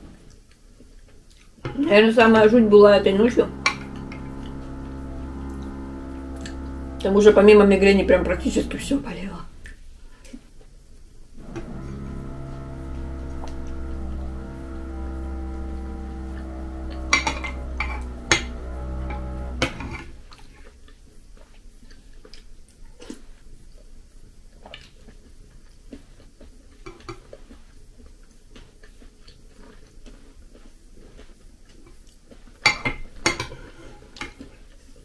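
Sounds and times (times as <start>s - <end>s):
held musical chord: 1.7s - 9.7s, 11.4s - 20.4s.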